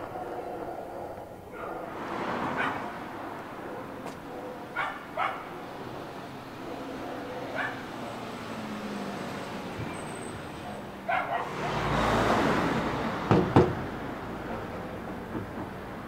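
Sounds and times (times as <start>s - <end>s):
dog barking: 0.0s - 8.2s, 10.6s - 12.0s
street noise: 0.0s - 16.0s
vehicle passing: 0.0s - 16.0s
sharp knocks: 13.2s - 14.0s.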